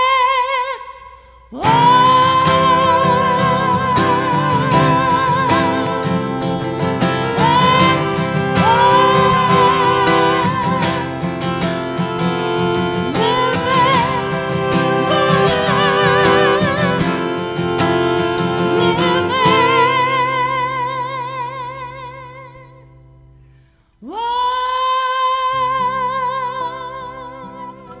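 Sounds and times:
woman singing with vibrato: 0:00.0 - 0:23.0, 0:24.0 - 0:28.0
violin: 0:01.6 - 0:22.8
strummed acoustic guitar: 0:01.6 - 0:23.7.

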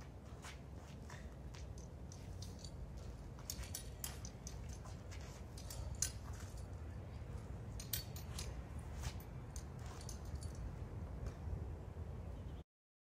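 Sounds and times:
footsteps scuffing on asphalt: 0:00.0 - 0:03.7.

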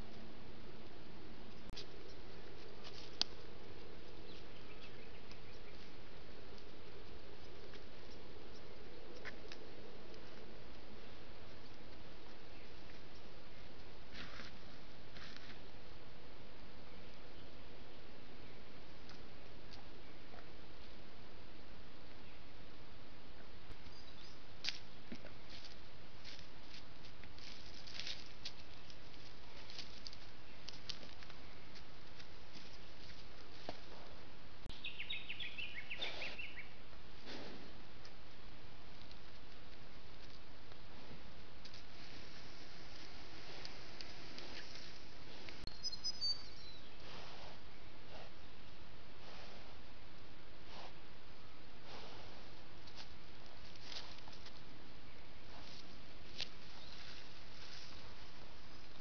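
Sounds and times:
deer stepping on dry leaves: 0:01.8 - 0:08.2, 0:09.1 - 0:15.8, 0:23.8 - 0:34.3, 0:37.3 - 0:45.7, 0:52.5 - 0:59.0.

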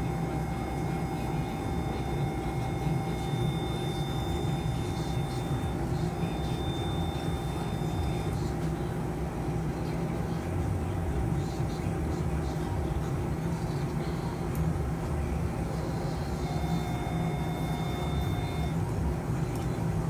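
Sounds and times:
faint high electronic tones: 0:00.0 - 0:08.8, 0:15.6 - 0:18.9
equipment humming: 0:00.0 - 0:20.0.

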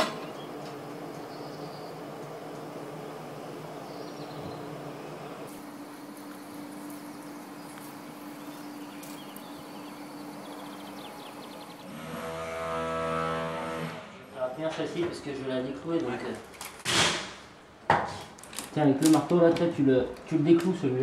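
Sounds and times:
crane motor humming: 0:00.0 - 0:14.4
louder multi-tone hum: 0:00.0 - 0:14.6
outdoor background noise: 0:00.0 - 0:21.0.

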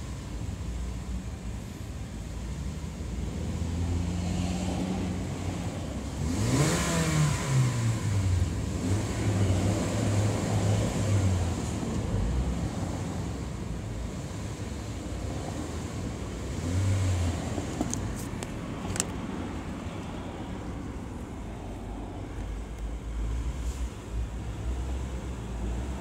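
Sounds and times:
car engine revving: 0:03.3 - 0:13.4, 0:15.2 - 0:18.0.

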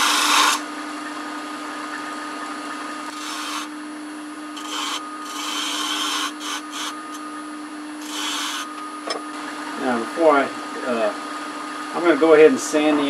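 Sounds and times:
gouge cutting wood on lathe: 0:00.0 - 0:00.6, 0:03.1 - 0:03.7, 0:04.6 - 0:07.2, 0:08.0 - 0:08.7
lathe motor humming: 0:00.0 - 0:00.6, 0:03.0 - 0:09.7.

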